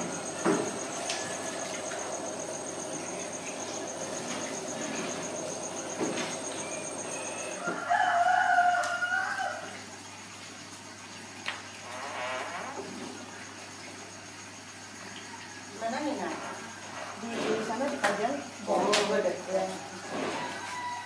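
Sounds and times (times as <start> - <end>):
steady background hiss: 0.0 - 7.9
rooster crowing: 5.6 - 9.8, 19.5 - 21.0.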